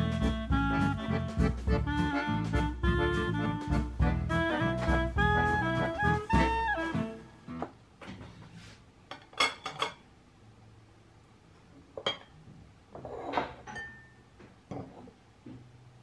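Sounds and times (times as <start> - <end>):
tableware clinking: 9.1 - 10.1, 12.0 - 15.1.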